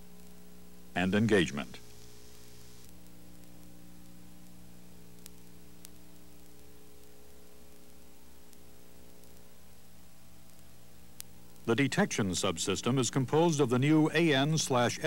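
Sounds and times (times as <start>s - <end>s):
faint ticks: 0.0s - 0.6s, 1.8s - 11.8s
steady electrical hum: 0.0s - 15.0s
tape hiss: 0.0s - 15.0s.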